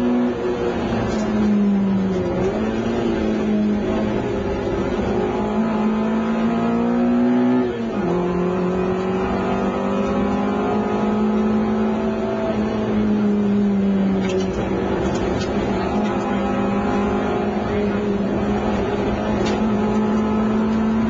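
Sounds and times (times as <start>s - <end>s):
rally car engine revving: 0.0s - 21.0s
gear upshift: 7.6s - 21.0s.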